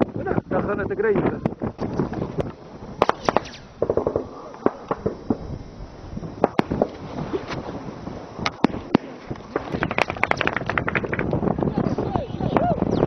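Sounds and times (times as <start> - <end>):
gunshots: 3.0 - 5.4.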